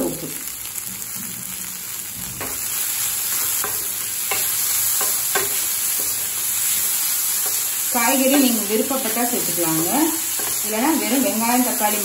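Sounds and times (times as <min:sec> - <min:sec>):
vegetables sizzling in oil: 0:00.0 - 0:12.0
spatula scraping frying pan: 0:02.4 - 0:08.8, 0:10.2 - 0:12.0.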